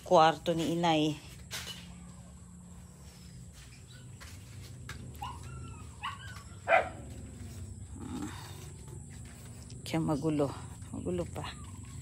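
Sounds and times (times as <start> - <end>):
dog barking: 5.2 - 7.1.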